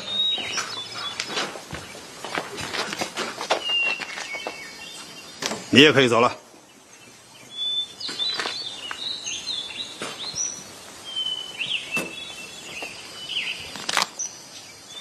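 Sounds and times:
rope and cloth rustling: 0.0s - 5.2s
small birds chirping: 0.0s - 15.0s.

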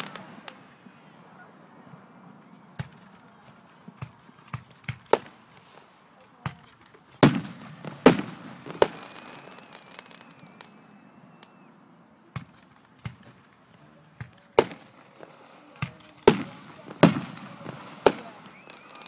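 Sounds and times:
firework shells bursting: 0.0s - 0.6s, 6.5s - 11.7s, 12.4s - 19.0s.

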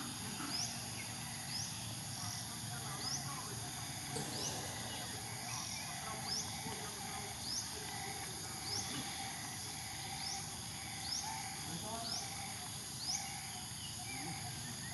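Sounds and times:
high-pitched insect drone: 0.0s - 14.9s.

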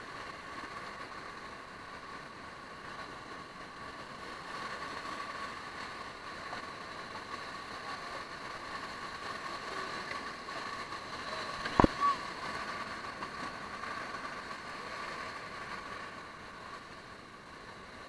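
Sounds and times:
whitewater rapids rushing: 4.5s - 16.7s.

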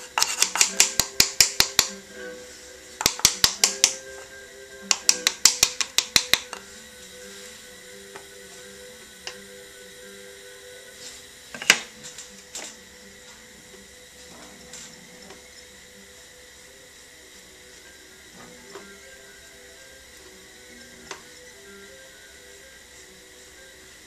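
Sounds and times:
faint steady hum: 0.0s - 24.0s
wooden paddle slapping clay: 0.2s - 1.9s, 3.0s - 4.0s.

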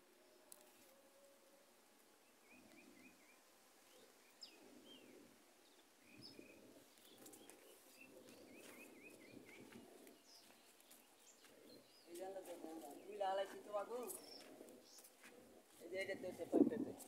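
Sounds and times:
faint bird chirps: 2.3s - 12.2s.

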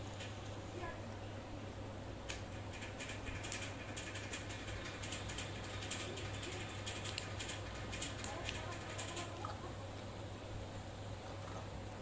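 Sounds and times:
steady low hum: 0.0s - 12.0s
parrot beaks clicking on metal tray: 2.3s - 9.4s.

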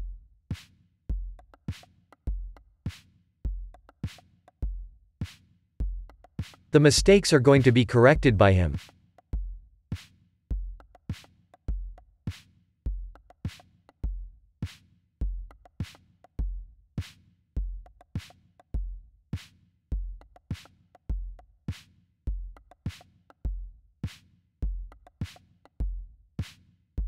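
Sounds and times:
drum-machine beat: 6.1s - 8.8s.

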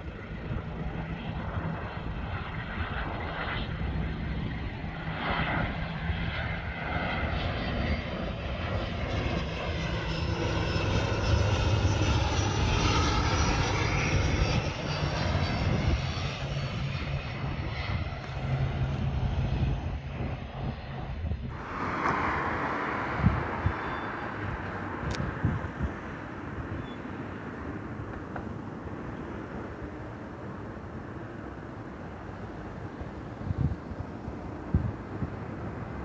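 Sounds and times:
turboprop airliner landing: 0.0s - 36.0s.

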